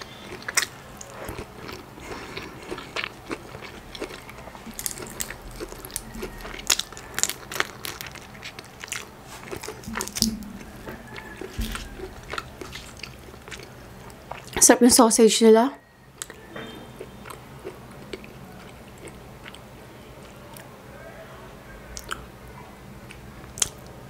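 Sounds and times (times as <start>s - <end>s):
shrimp shells crackling: 0.0s - 14.2s
wet chewing and mouth smacks: 0.0s - 14.6s, 16.2s - 16.4s, 22.0s - 22.2s, 23.1s - 23.9s.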